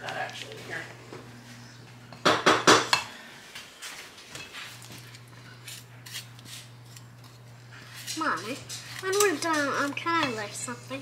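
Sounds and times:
utensils scraping a metal bowl: 0:05.6 - 0:11.0.

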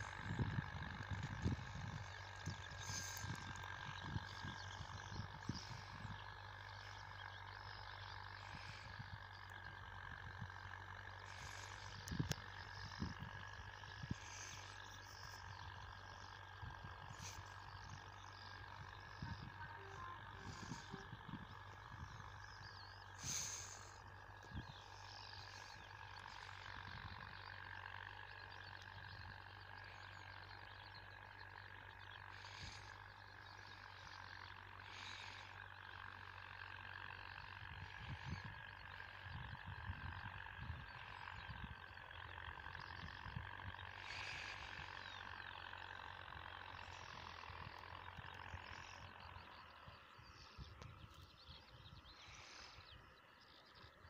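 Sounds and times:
wind rumble on microphone: 0:00.0 - 0:07.3, 0:08.4 - 0:24.8, 0:37.6 - 0:44.9
distant tractor engine: 0:00.0 - 0:54.0.

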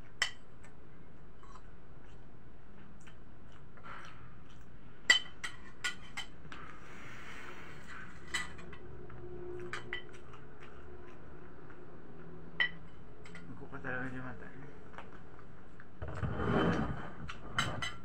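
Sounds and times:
cutlery clinking on a plate: 0:05.1 - 0:06.4, 0:08.2 - 0:08.8, 0:12.6 - 0:13.5.

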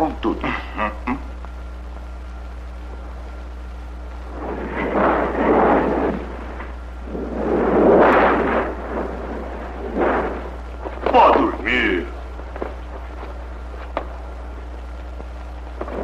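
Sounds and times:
steady low hum: 0:00.0 - 0:16.0
thunder rolling: 0:04.2 - 0:11.6, 0:15.8 - 0:16.0.

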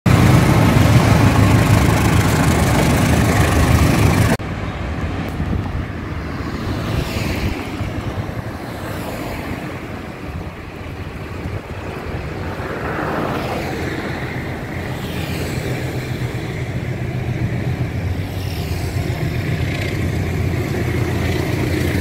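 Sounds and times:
loud vehicle rumble: 0:00.0 - 0:22.0
roadside traffic noise: 0:00.0 - 0:22.0
passing vehicle whine: 0:00.1 - 0:22.0.

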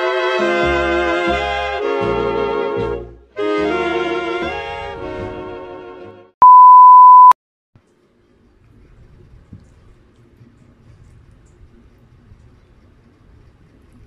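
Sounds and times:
loud high steady beep: 0:06.4 - 0:07.4.

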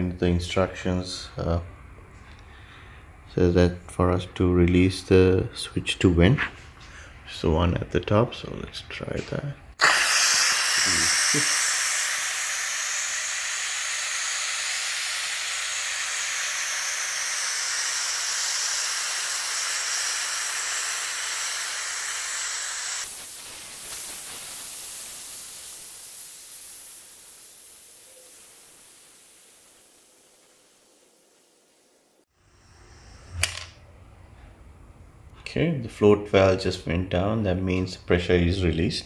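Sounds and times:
steam hissing from pressure cooker: 0:09.8 - 0:33.6.

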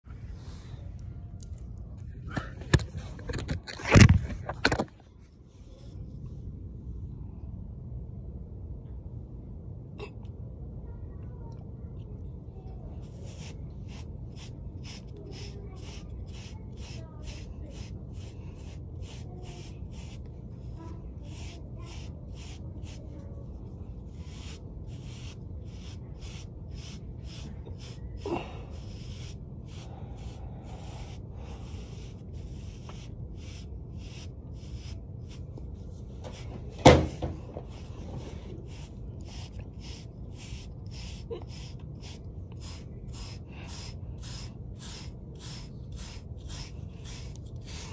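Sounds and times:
bristle brush scratching hair: 0:13.0 - 0:47.9.

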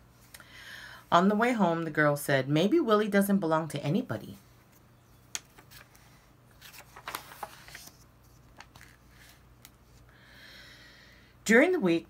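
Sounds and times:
paper page rustling: 0:04.7 - 0:10.0.

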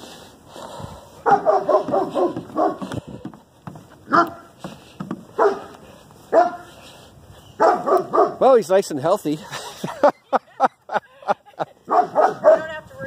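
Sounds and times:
dog barking: 0:01.2 - 0:02.9, 0:04.1 - 0:04.5, 0:05.3 - 0:06.7, 0:07.6 - 0:08.4, 0:11.9 - 0:12.8.

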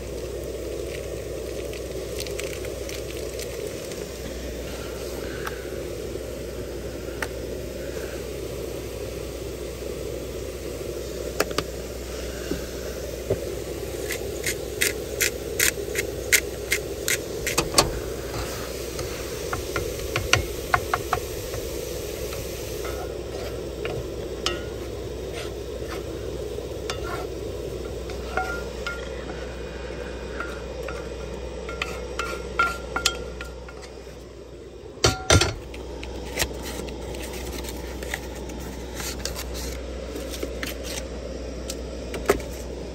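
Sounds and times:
spatula scraping and tapping pan: 0:22.8 - 0:26.1, 0:26.8 - 0:27.3, 0:28.0 - 0:29.4, 0:30.3 - 0:34.0.

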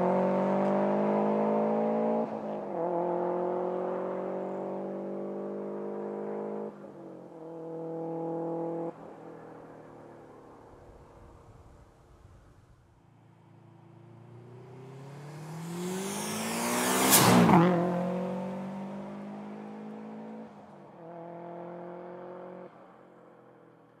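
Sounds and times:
car accelerating past: 0:00.0 - 0:06.8, 0:14.2 - 0:22.7.

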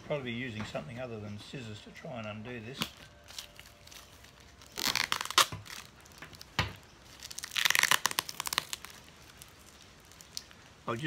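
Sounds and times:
plastic packaging tearing: 0:02.7 - 0:10.7
plastic snapping: 0:04.8 - 0:08.9.

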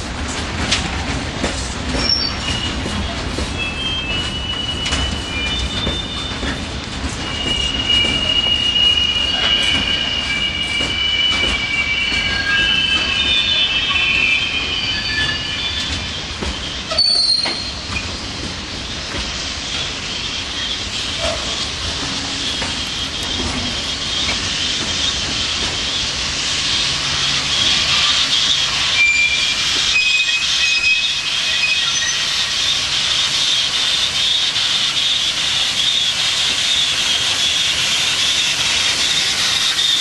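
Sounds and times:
freight train rolling rumble: 0:00.0 - 0:40.0
train wheels clicking: 0:00.0 - 0:40.0
high-pitched wheel squeal: 0:07.2 - 0:18.1, 0:27.2 - 0:32.8.

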